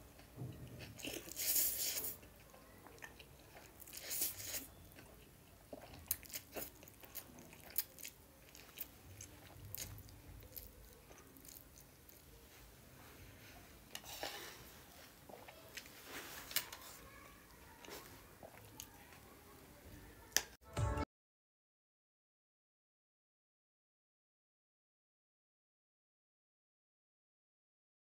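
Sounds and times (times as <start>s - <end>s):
chewing with wet mouth clicks: 0.8s - 12.4s
noodle slurping: 1.0s - 2.2s, 3.6s - 4.8s.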